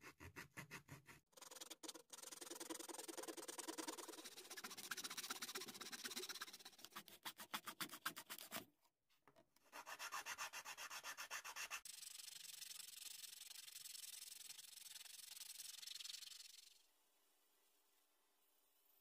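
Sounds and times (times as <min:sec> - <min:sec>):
file rasping on wood: 0:00.0 - 0:01.9, 0:09.7 - 0:11.9
hand saw cutting wood: 0:00.0 - 0:01.9, 0:09.7 - 0:11.9.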